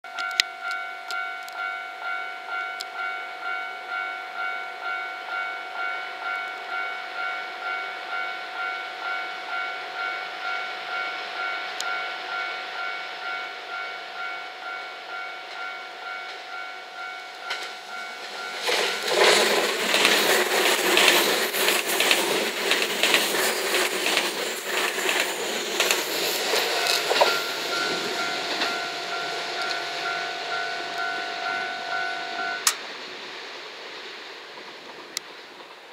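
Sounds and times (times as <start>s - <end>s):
train wheels rushing on rails: 0.1s - 35.9s
level crossing alarm pulsing: 24.7s - 32.8s.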